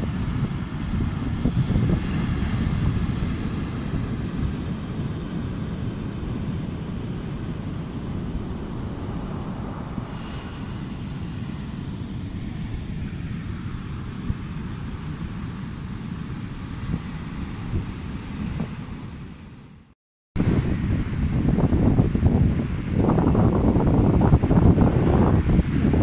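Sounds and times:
surf washing on sand: 0.0 - 19.8, 20.4 - 26.0
wind noise on microphone: 0.0 - 26.0.

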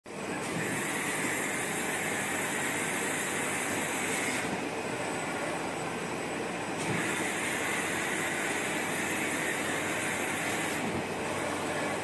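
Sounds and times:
printing machine humming and hissing: 0.1 - 12.0.

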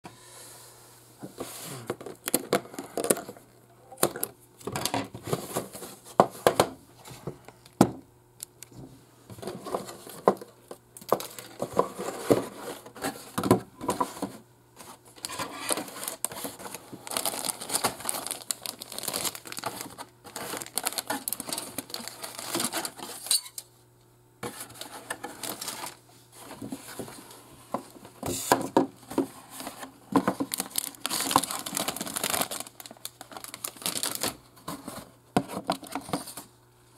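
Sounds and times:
plastic bags crinkling: 11.0 - 12.4, 15.1 - 23.5, 24.7 - 26.0, 29.6 - 35.0
cardboard rustling: 11.1 - 23.2, 24.4 - 36.5
plastic parts clicking and rattling: 15.2 - 23.6, 30.1 - 36.4.

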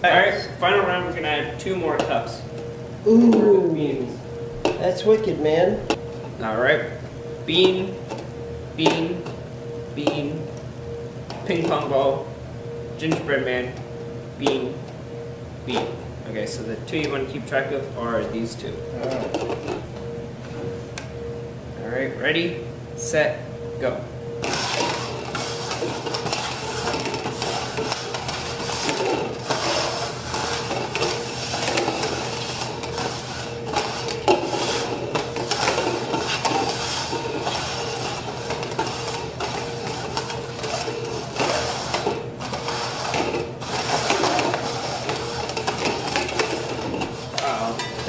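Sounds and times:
plastic cups scraping on table: 24.4 - 48.0.

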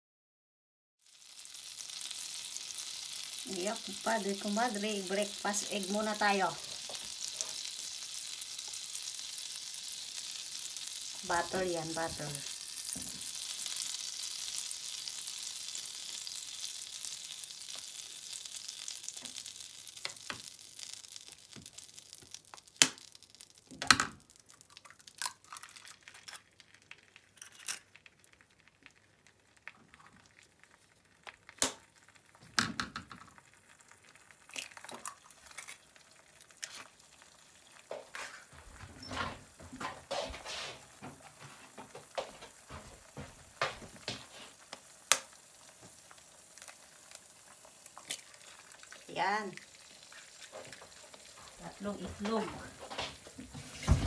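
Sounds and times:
butter sizzling in frying pan: 1.0 - 54.0
eggs cracking knocks: 19.1 - 30.2, 31.2 - 33.5.

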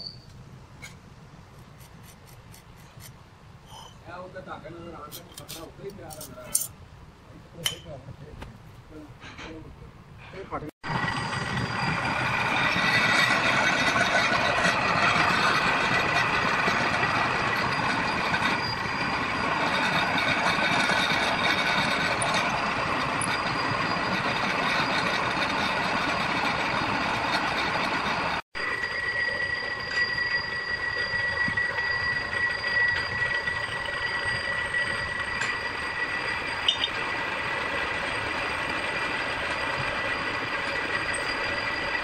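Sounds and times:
machine whine: 10.8 - 42.0.

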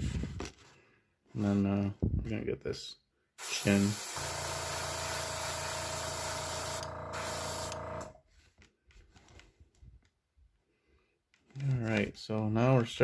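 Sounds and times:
airbrush spraying hiss: 3.4 - 7.8.

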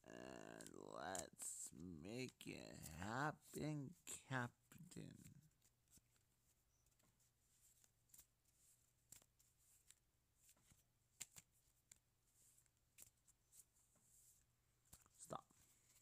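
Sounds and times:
cards being shuffled: 0.2 - 16.0.

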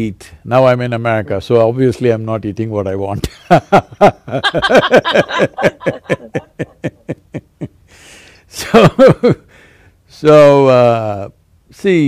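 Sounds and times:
person laughing: 3.8 - 7.8.

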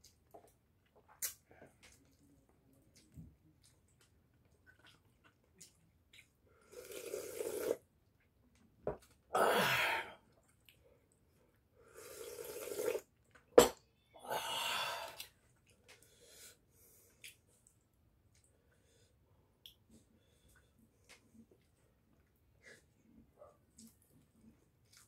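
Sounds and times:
soup slurping: 6.7 - 7.8, 11.9 - 13.1.

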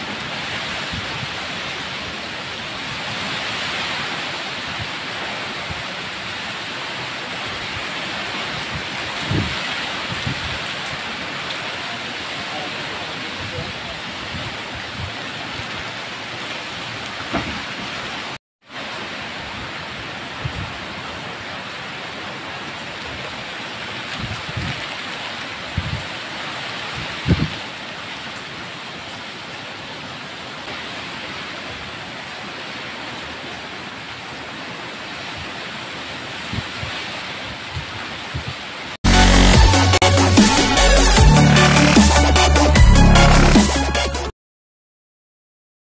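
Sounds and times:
rain and wind hiss: 0.0 - 39.5
low thumps: 17.2 - 18.0.

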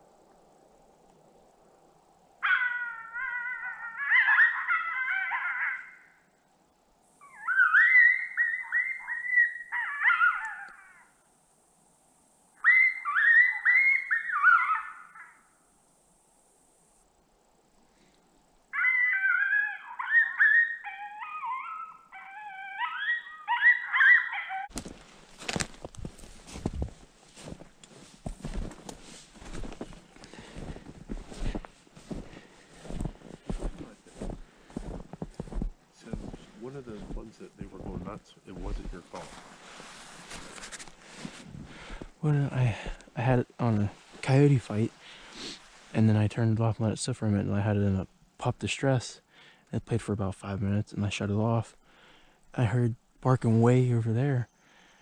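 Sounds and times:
electronic coyote pup distress call: 2.4 - 6.2, 7.2 - 11.2, 12.6 - 15.5, 18.7 - 24.7
rustle of movement: 24.7 - 46.0.

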